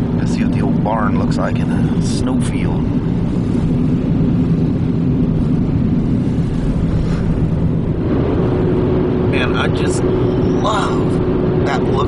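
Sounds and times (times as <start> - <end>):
car road and engine noise: 0.0 - 12.0
steady hum: 0.0 - 12.0.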